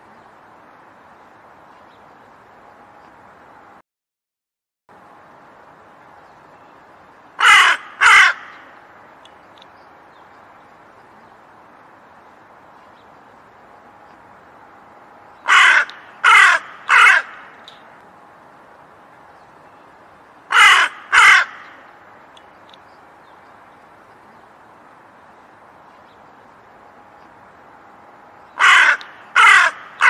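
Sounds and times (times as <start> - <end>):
crow cawing: 7.4 - 8.7, 15.5 - 17.6, 20.5 - 21.9, 28.6 - 30.0.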